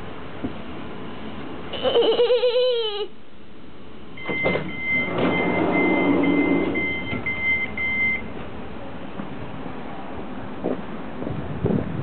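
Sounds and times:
door mechanism rushing: 4.2s - 7.3s
high warning beeps: 4.2s - 8.3s.

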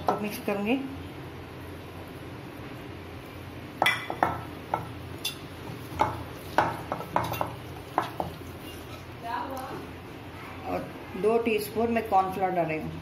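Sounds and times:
metal bowl clinking and knocking: 6.0s - 8.4s.

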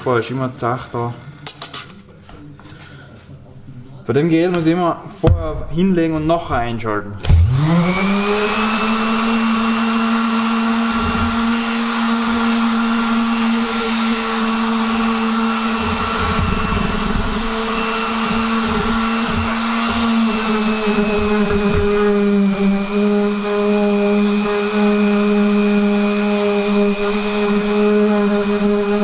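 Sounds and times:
orbital sander running: 7.2s - 29.0s.

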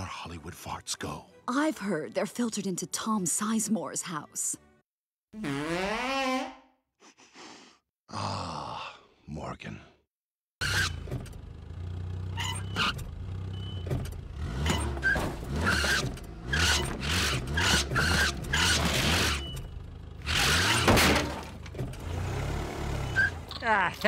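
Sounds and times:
tyre screeches: 10.6s - 11.2s, 12.3s - 13.1s, 14.6s - 19.7s
car engine revving: 11.0s - 23.5s.

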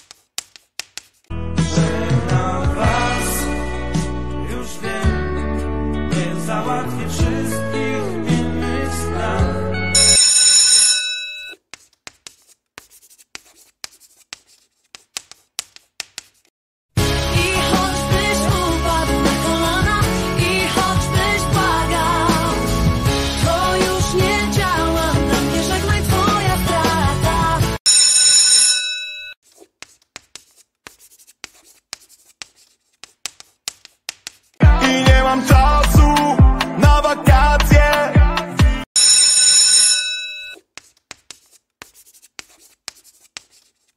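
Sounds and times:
chalk writing on blackboard: 0.0s - 1.3s, 11.5s - 16.5s, 29.4s - 34.6s, 40.6s - 43.9s.

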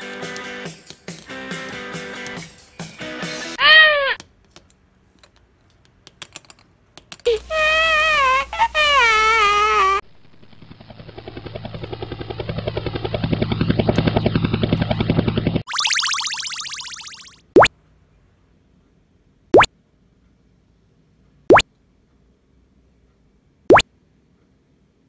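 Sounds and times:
cartoon crying wail: 3.6s - 4.2s, 7.4s - 10.0s
helicopter chopping effect: 10.2s - 17.7s.

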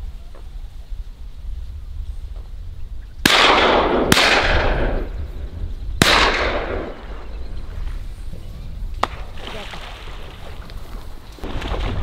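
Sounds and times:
shotgun shots: 3.2s - 5.1s, 6.0s - 7.2s.

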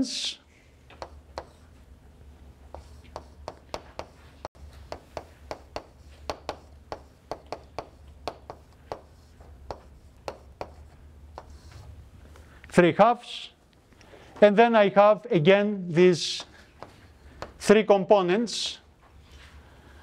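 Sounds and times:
faint low room hum: 0.0s - 20.0s
chalk tapping and scraping on blackboard: 0.9s - 1.7s, 2.7s - 11.9s, 16.4s - 17.6s.

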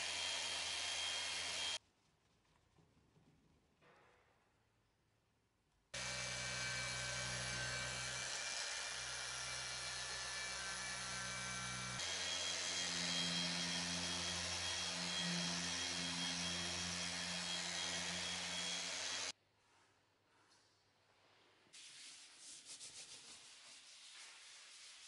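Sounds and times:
rotary polisher motor whine: 0.0s - 1.8s, 6.0s - 19.3s.

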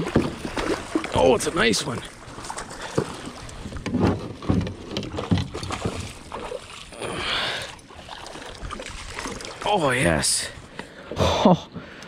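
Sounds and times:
net splashing into water: 0.0s - 1.2s, 5.2s - 7.2s, 7.9s - 9.7s.

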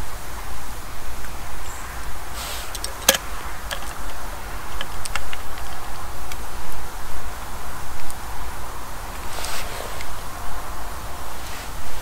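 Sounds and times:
steady low rumble: 0.0s - 12.0s
short hiss: 2.3s - 3.2s, 9.2s - 10.2s
bottle cap clicks and ticks: 2.6s - 6.4s.

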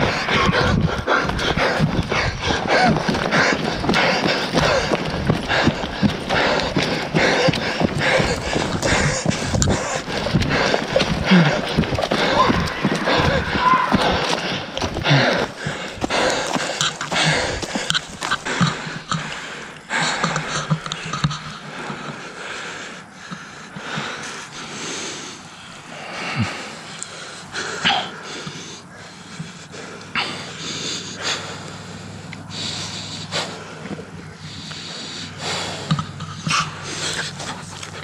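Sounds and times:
rustling: 0.0s - 19.3s
person breathing hard: 0.0s - 38.0s.

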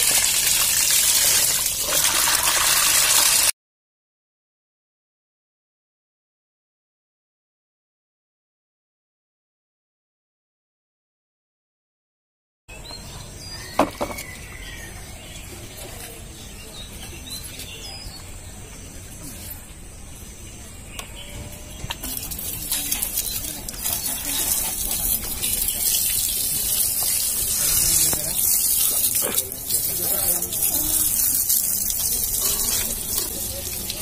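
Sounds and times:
water spray hitting wheel: 0.0s - 3.5s, 21.9s - 34.0s.

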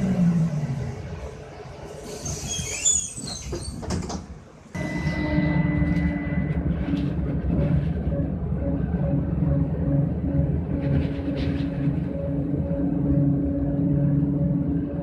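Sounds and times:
bus doors squeaking and knocking: 2.1s - 7.1s.

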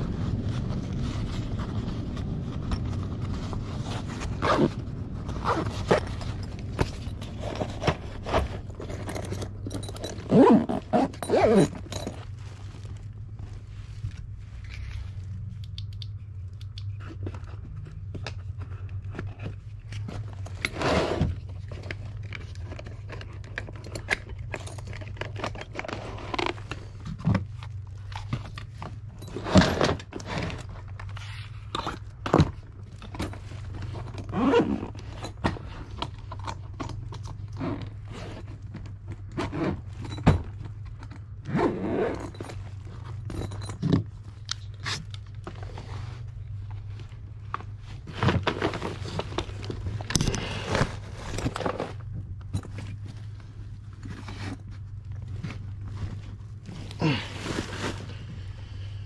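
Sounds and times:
tools scraping and clunking: 5.4s - 13.0s.

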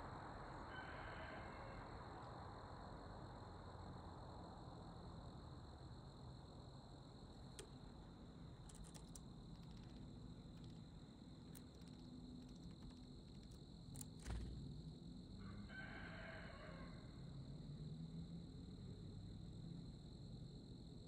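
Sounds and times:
bird pecking on wood: 8.6s - 14.6s.

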